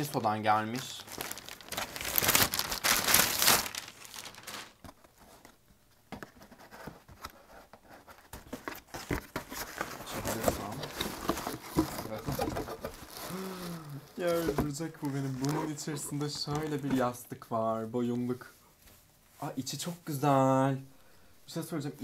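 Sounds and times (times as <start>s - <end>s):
plastic bag crinkling: 0.0s - 5.0s, 10.0s - 17.1s
cardboard box flaps rustling: 8.3s - 13.3s.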